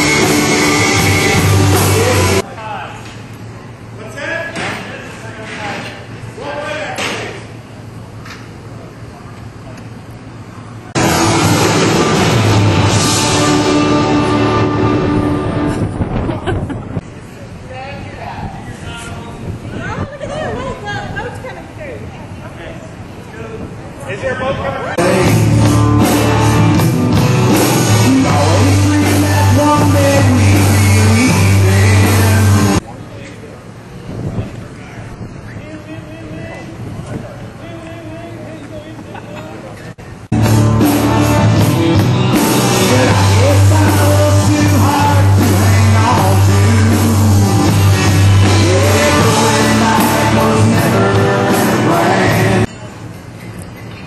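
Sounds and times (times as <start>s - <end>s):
country-rock band playing: 0.0s - 2.4s, 11.0s - 16.0s, 25.0s - 32.8s, 40.3s - 52.7s
person singing: 25.0s - 26.5s, 27.6s - 32.8s, 42.4s - 52.7s.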